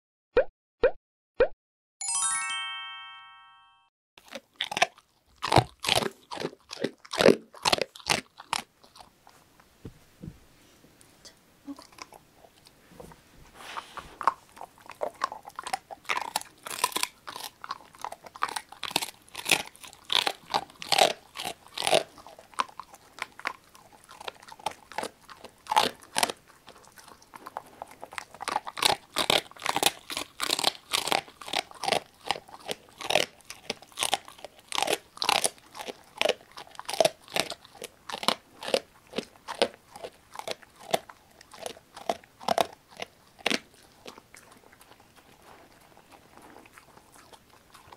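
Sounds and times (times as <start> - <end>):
dog crunching bone: 4.2 - 9.4, 14.0 - 47.9.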